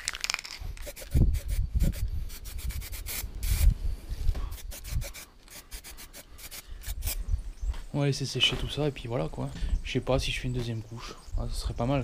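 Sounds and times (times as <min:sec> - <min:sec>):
low thumps: 0:07.2 - 0:10.8.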